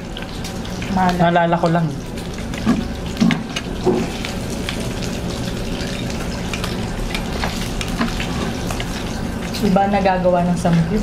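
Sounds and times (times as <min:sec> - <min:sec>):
meat sizzling and crackling: 0:00.0 - 0:11.0.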